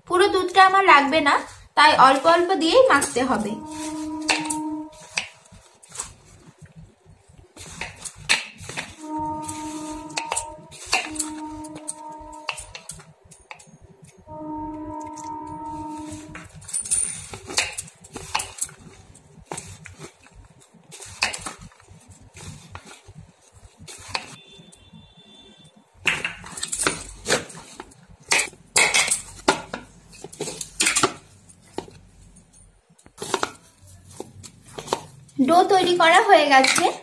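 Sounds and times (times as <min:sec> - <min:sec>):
steady pitched tone: 0:02.9 - 0:05.7, 0:09.0 - 0:16.6.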